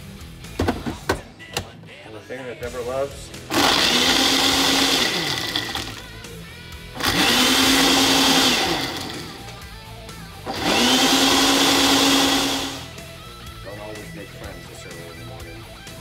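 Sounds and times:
blender motor: 3.5 - 6.2, 7.0 - 9.6, 10.4 - 13.0.

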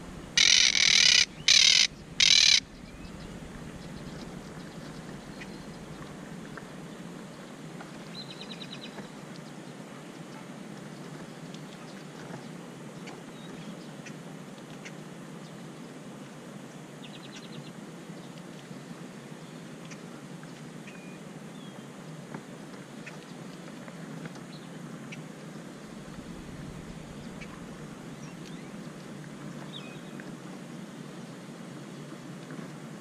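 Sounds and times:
background hiss: 0.0 - 10.2, 15.3 - 33.0
parakeet squawking: 0.2 - 2.8.

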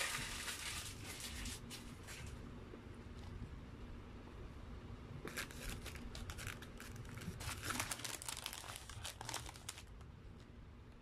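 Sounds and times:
paper wrapper crinkling: 0.0 - 2.3, 5.3 - 10.1.

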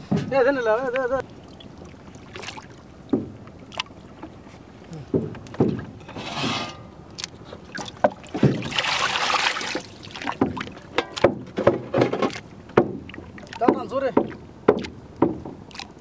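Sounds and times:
knocks on wooden boat: 0.0 - 0.6, 3.1 - 3.5, 5.0 - 6.1, 8.0 - 8.8, 9.7 - 15.8
water splashing: 0.0 - 16.0.

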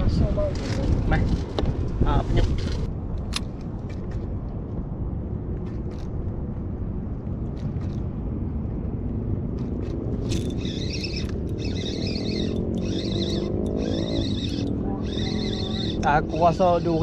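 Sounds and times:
wind rumble on microphone: 0.0 - 17.0
wavering high-pitched sound: 10.4 - 17.0.

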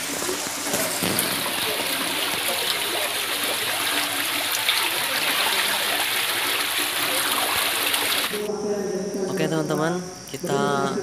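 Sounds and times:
small splashes: 0.0 - 8.4
water rushing and splashing: 0.0 - 8.5.

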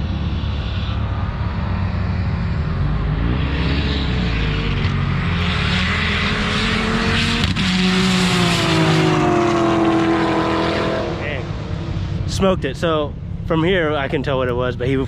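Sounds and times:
nearer engine at steady pitch: 0.0 - 15.0
racing cars accelerating hard: 2.1 - 12.4.

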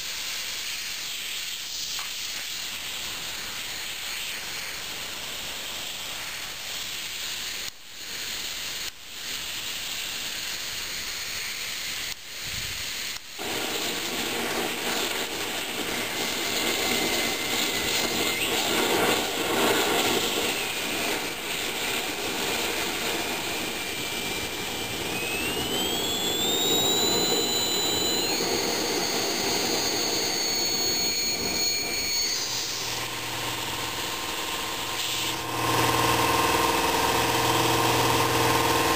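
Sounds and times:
motor hum: 13.4 - 38.9
oil burner roaring: 13.4 - 38.9
rising whistle: 13.4 - 38.9.

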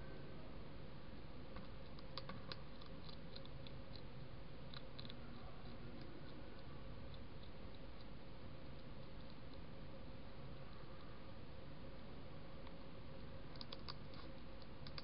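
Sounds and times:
hedgehog crunching dry food: 1.5 - 10.2, 12.6 - 15.0.

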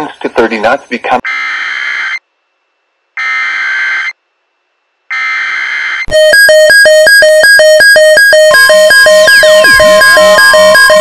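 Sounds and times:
electronic alert alarm beeping: 6.0 - 11.0
harsh buzzy data tones: 6.1 - 11.0.

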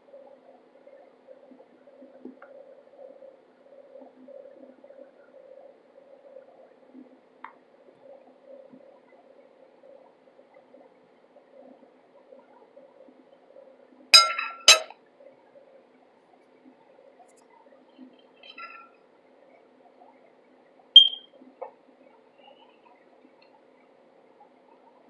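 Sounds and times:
metal spoon clinking on plate: 14.2 - 14.9.

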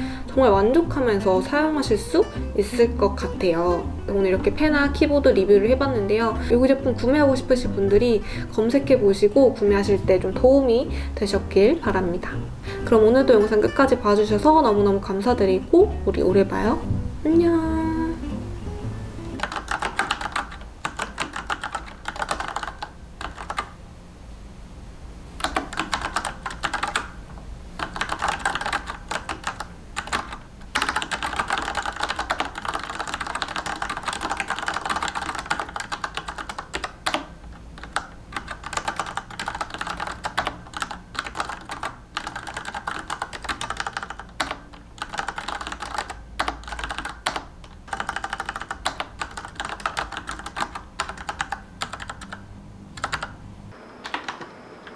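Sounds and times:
mechanical keyboard typing: 19.4 - 23.8, 25.4 - 27.2, 27.8 - 53.4.

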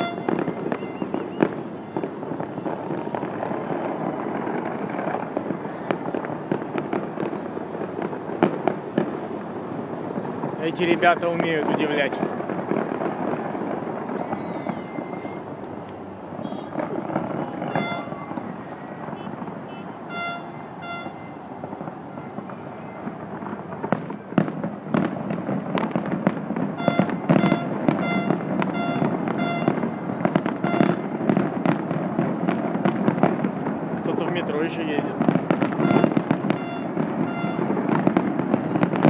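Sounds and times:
fireworks bursting and crackling: 0.0 - 39.0
short horn toots: 19.1 - 21.3, 26.8 - 29.8, 35.8 - 37.6.

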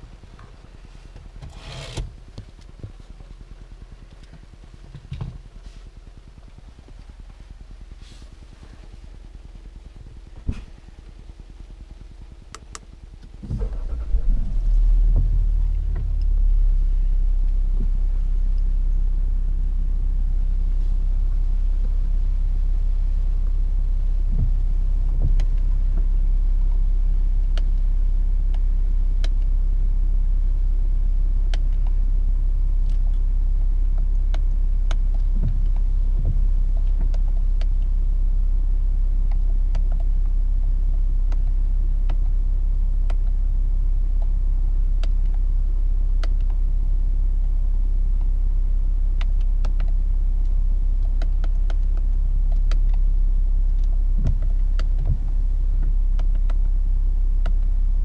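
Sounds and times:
diesel engine starting and idling: 0.0 - 30.1.

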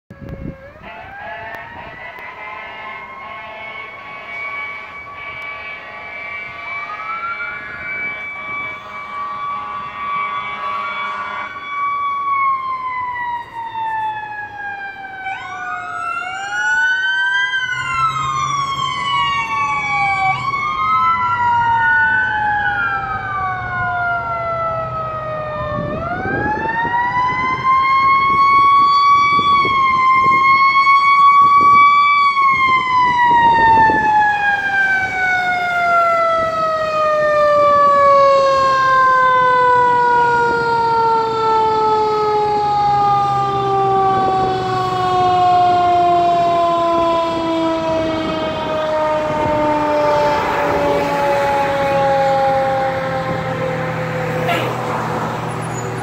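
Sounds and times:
fire engine siren wailing: 0.0 - 56.0.

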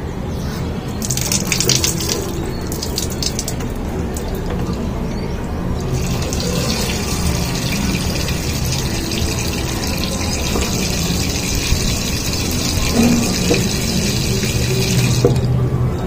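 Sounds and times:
water rushing and gurgling: 5.6 - 15.6.

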